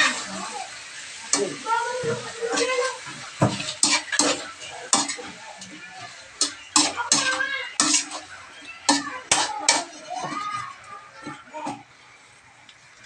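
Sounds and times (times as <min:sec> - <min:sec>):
metal spatula clanking on wok: 0:02.1 - 0:10.4.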